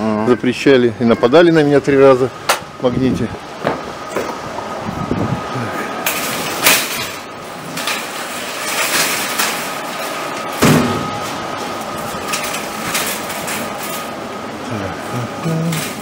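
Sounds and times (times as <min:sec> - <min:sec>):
shopping cart clattering: 0:06.0 - 0:11.0, 0:11.6 - 0:16.0.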